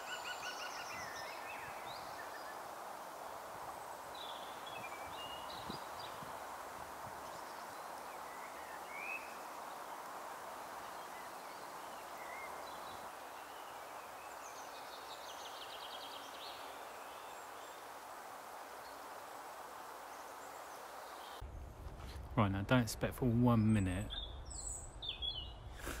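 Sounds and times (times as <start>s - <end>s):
outdoor ambience hiss: 0.0s - 26.0s
small birds chirping: 3.7s - 6.5s, 7.1s - 18.0s, 23.3s - 26.0s.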